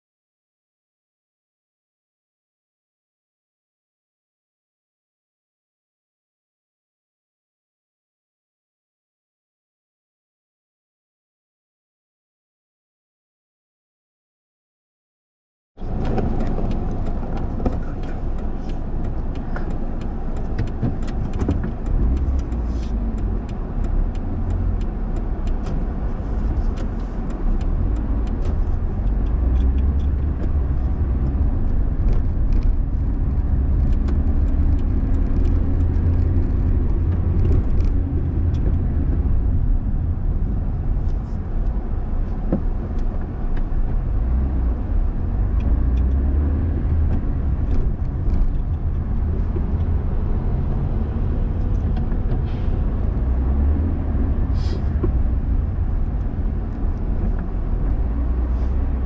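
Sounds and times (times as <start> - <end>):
car engine and tyre rumble: 15.8 - 59.0.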